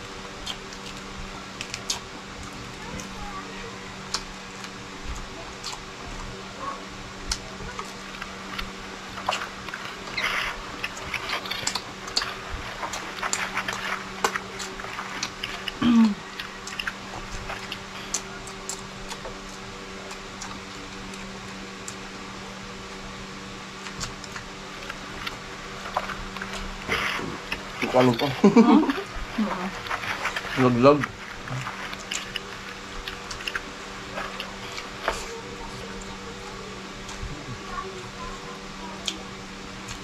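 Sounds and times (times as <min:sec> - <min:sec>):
low electrical hum: 0:00.0 - 0:40.0
chewing and lip smacks: 0:00.4 - 0:03.2, 0:04.0 - 0:06.3, 0:07.2 - 0:22.2, 0:23.8 - 0:37.9
short hummed voice: 0:15.6 - 0:16.4, 0:26.8 - 0:29.8, 0:34.0 - 0:39.6.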